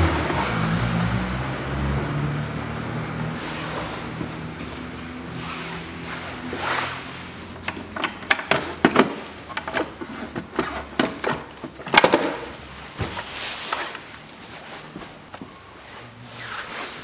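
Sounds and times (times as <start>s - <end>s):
hard plastic clicking and rattling: 7.6s - 12.6s.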